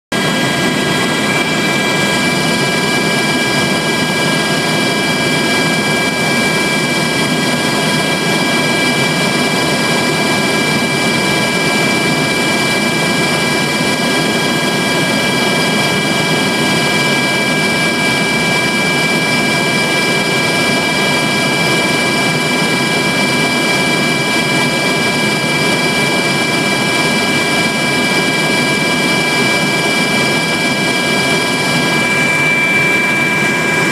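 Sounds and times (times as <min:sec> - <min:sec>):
aircraft cabin roar: 0:00.1 - 0:33.9
high turbine whine: 0:00.1 - 0:33.9.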